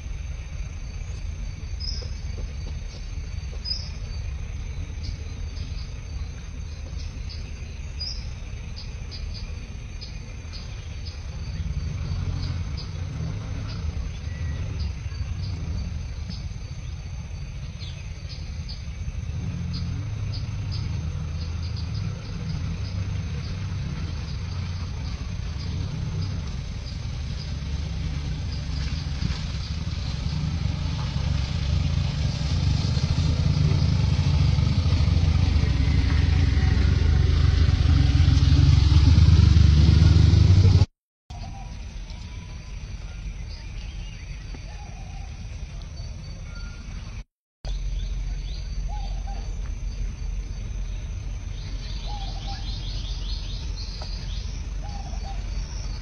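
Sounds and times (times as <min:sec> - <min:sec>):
insects chirping: 0:00.0 - 0:40.5, 0:41.3 - 0:56.0
low rumble: 0:00.0 - 0:40.9.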